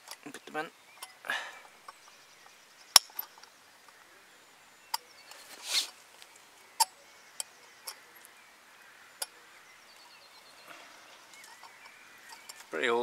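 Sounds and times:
sharp metal clicks: 0:02.9 - 0:03.5
handling rustle: 0:05.2 - 0:06.6.

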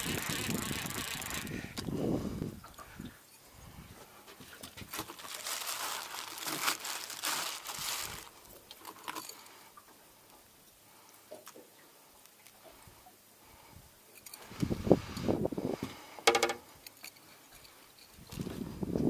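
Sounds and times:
plastic bag crinkling: 0:00.0 - 0:01.8, 0:04.9 - 0:09.4.

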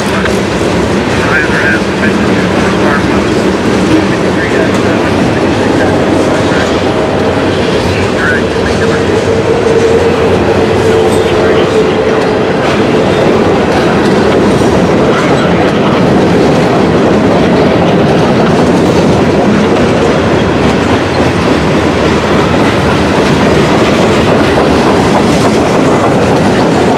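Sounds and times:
clickety-clack over rail joints: 0:00.0 - 0:26.9
train wheels rumbling on rails: 0:00.0 - 0:26.9.

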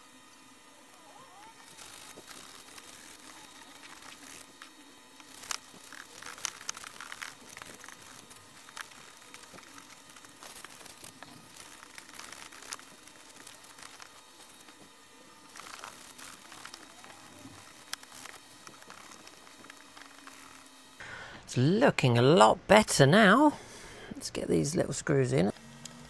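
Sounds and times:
paper towel rustling: 0:01.4 - 0:20.9
small clicks: 0:01.6 - 0:21.0.

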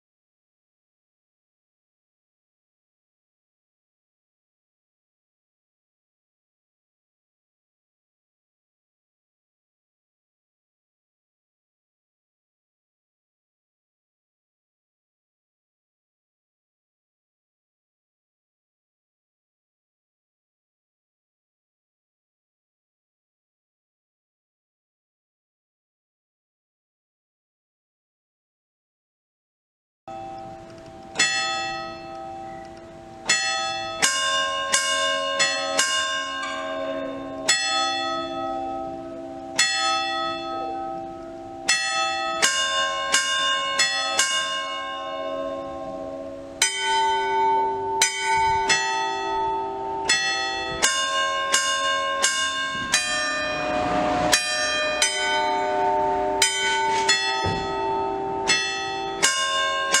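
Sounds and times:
church bells ringing: 0:33.4 - 1:00.0.

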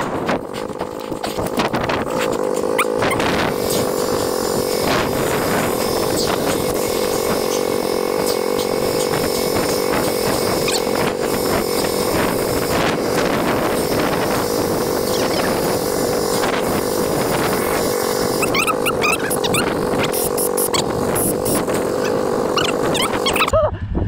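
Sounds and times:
atv engine running: 0:00.0 - 0:23.6.

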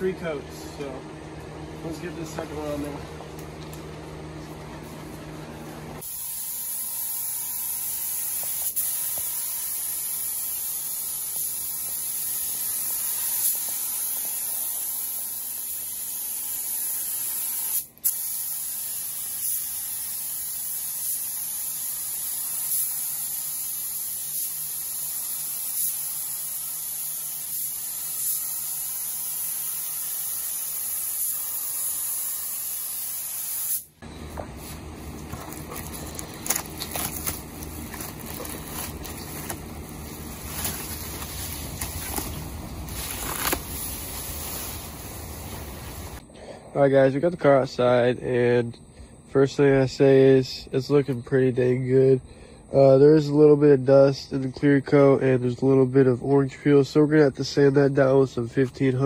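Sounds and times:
paint spray gun hissing: 0:06.0 - 0:34.0, 0:37.1 - 0:46.2.

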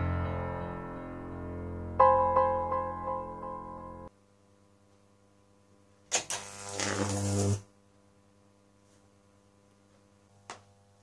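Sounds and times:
faint steady hum: 0:02.0 - 0:11.0
electric arc snap: 0:06.0 - 0:07.8
high-voltage arc buzzing: 0:06.0 - 0:07.9.

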